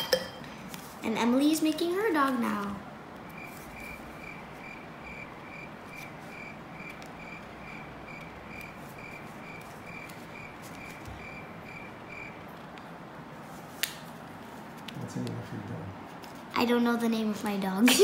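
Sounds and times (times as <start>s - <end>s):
insect chirping: 3.3s - 12.4s.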